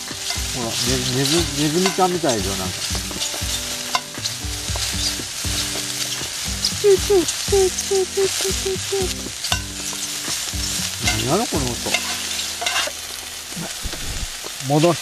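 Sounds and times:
mushrooms squeaking: 0:00.0 - 0:14.8
sizzling in a wok: 0:00.0 - 0:15.0
tongs clicking against pan: 0:00.2 - 0:05.2, 0:06.0 - 0:13.0.

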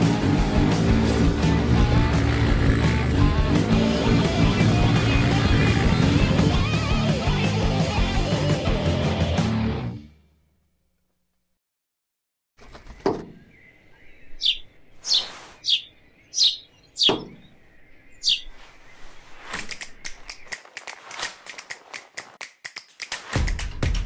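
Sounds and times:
dull thuds: 0:12.6 - 0:13.5
bird chip calls: 0:12.6 - 0:21.9.

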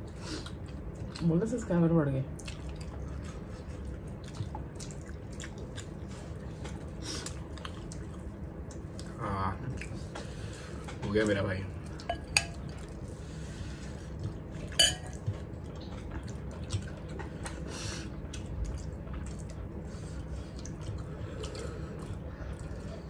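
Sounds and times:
metal spoon clinking on dish: 0:12.1 - 0:12.6, 0:14.8 - 0:15.2.

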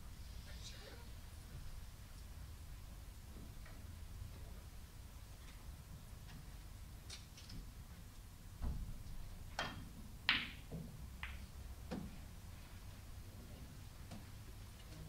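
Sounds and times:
cue tip hitting ball: 0:09.6 - 0:12.1
ball striking ball: 0:10.3 - 0:11.4.

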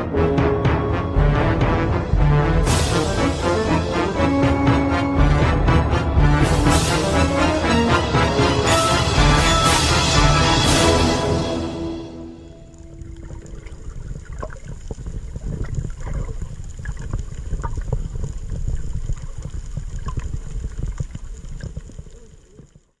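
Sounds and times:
underwater rumble of moving water: 0:12.6 - 0:23.0
sharp underwater clicks and crackles: 0:12.8 - 0:23.0.

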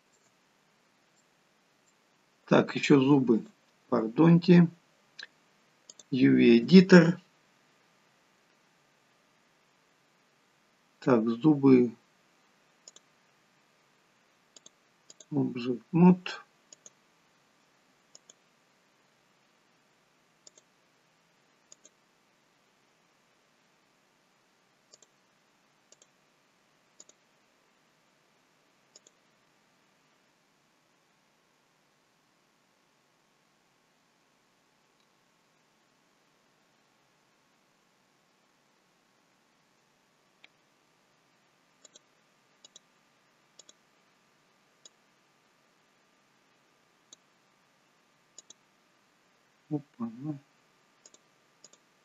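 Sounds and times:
low hiss: 0:00.0 - 0:52.0
computer mouse clicks: 0:00.1 - 0:00.4, 0:05.9 - 0:06.1, 0:12.8 - 0:13.1, 0:14.5 - 0:15.4, 0:16.7 - 0:17.0, 0:18.1 - 0:18.4, 0:20.4 - 0:20.7, 0:21.7 - 0:22.0, 0:24.9 - 0:25.2, 0:25.9 - 0:26.2, 0:27.0 - 0:27.2, 0:28.9 - 0:29.2, 0:41.8 - 0:42.9, 0:43.6 - 0:43.8, 0:44.8 - 0:45.0, 0:48.4 - 0:48.6, 0:51.0 - 0:51.9.

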